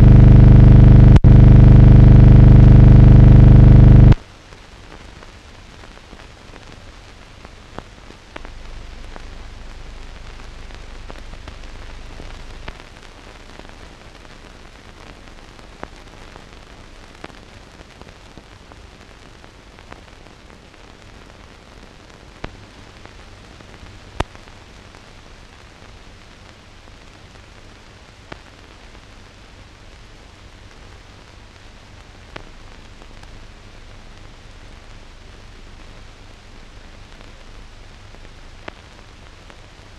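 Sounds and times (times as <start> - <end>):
clicks and pops: 0.0 - 4.2
low hum: 0.0 - 4.2
film soundtrack hiss: 0.0 - 39.9.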